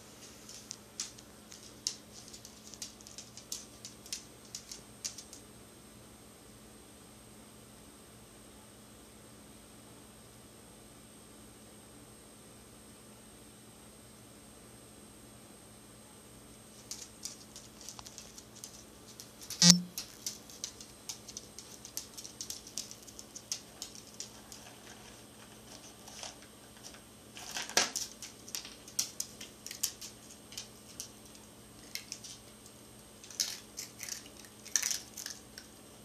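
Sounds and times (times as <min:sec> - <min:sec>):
dog crunching kibble: 0:16.8 - 0:32.5, 0:33.2 - 0:35.7.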